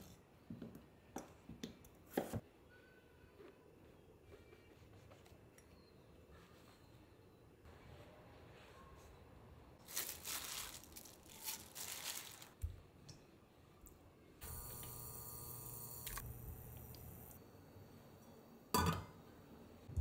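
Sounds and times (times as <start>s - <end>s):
crackly rustling: 9.8s - 12.6s.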